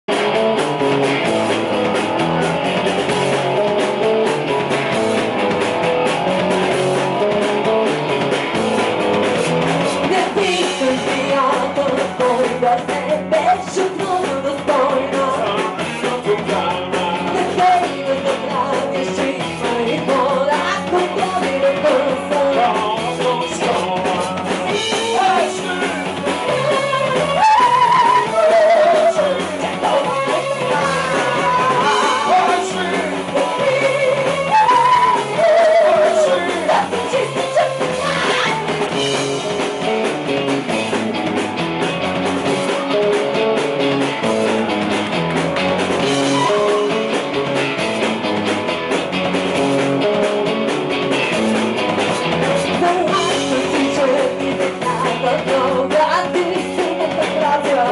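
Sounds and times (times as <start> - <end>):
rock band playing: 0.0 - 57.9
woman singing: 9.9 - 38.7, 52.6 - 57.9.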